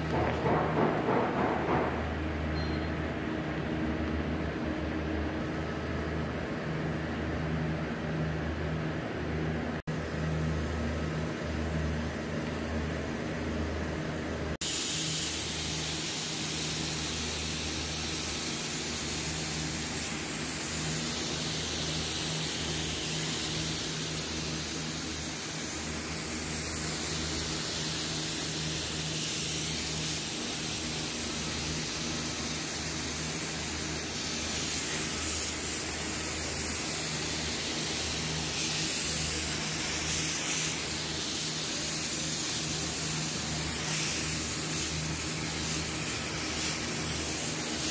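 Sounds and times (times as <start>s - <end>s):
paint spray gun hissing: 14.6s - 47.9s.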